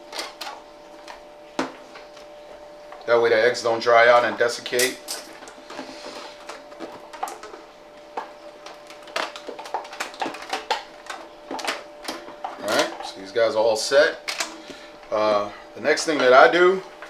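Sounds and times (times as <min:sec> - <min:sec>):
plastic tub crinkling: 0:03.5 - 0:13.4.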